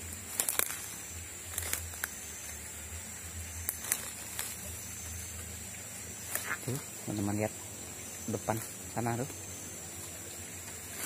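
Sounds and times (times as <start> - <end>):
footsteps rustling through dry leaves: 0.0 - 2.6, 3.6 - 5.0
twigs crackling: 0.0 - 11.0.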